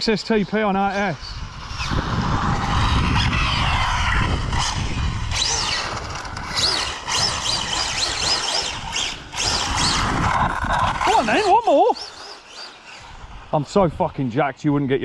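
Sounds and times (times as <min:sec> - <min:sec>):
rc car motor whine: 0:00.0 - 0:15.0
wind rumble on microphone: 0:00.5 - 0:11.9.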